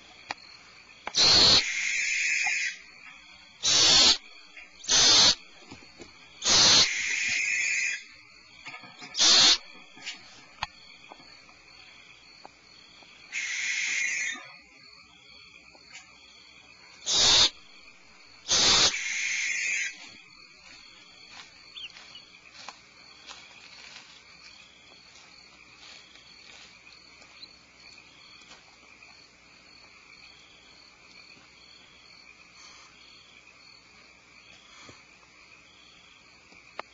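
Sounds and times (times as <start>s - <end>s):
barn owl screeching: 1.2s - 2.9s, 3.6s - 5.4s, 6.4s - 8.2s, 9.0s - 10.2s, 13.3s - 14.5s, 17.0s - 17.6s, 18.5s - 20.1s
faint high chirping: 18.5s - 22.4s.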